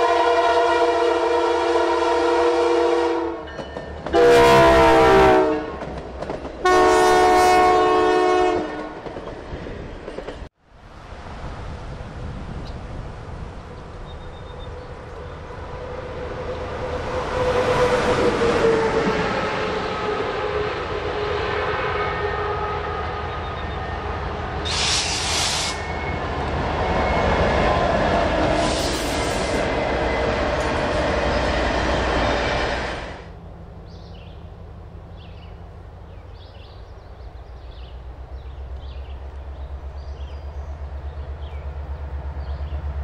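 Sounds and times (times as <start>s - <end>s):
locomotive horn: 0.0s - 5.9s, 6.6s - 9.1s, 16.3s - 31.7s
diesel freight train passing: 0.0s - 43.0s
short hissing bursts: 24.7s - 25.9s, 28.5s - 29.7s.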